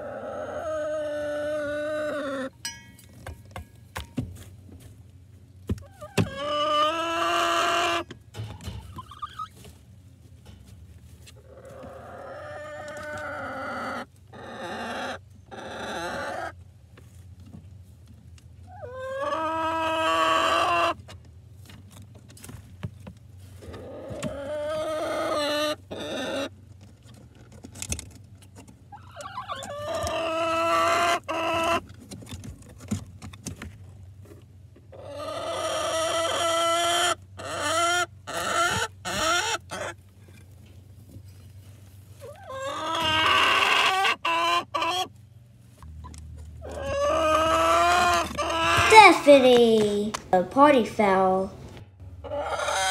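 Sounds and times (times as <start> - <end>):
chickens calling: 0.0 - 2.6, 5.4 - 17.2, 18.5 - 21.3, 23.3 - 26.8, 28.7 - 32.8, 34.8 - 49.5, 51.0 - 52.9
chickens clucking: 0.0 - 52.9.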